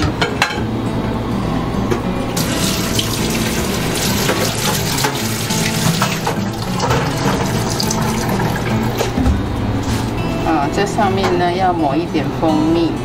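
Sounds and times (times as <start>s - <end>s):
water running into sink: 2.4s - 9.2s.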